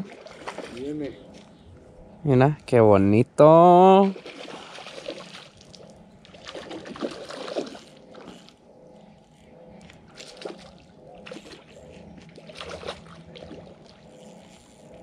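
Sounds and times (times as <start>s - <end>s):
faint steady hum: 0.0s - 15.0s
fish splashing at water surface: 4.0s - 8.3s.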